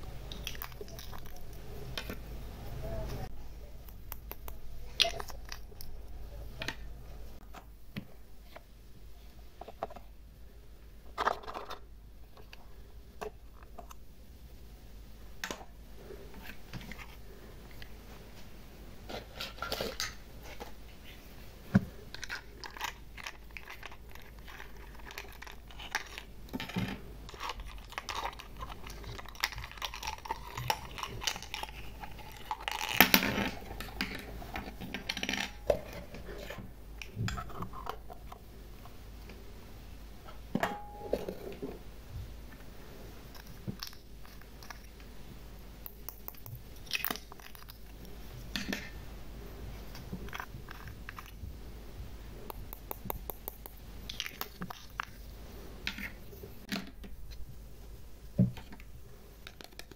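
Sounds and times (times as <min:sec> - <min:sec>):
plastic toys tapping glass dish: 0:52.5 - 0:53.8.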